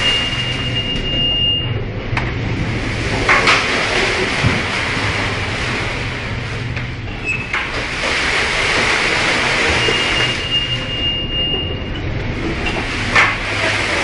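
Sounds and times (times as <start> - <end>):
sea noise: 0.0 - 14.0
steady low hum: 0.0 - 14.0.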